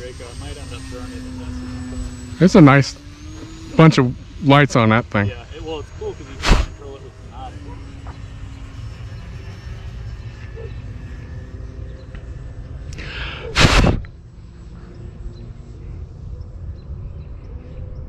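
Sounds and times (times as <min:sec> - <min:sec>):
loud burst of noise: 0:02.5 - 0:07.4, 0:12.9 - 0:14.2.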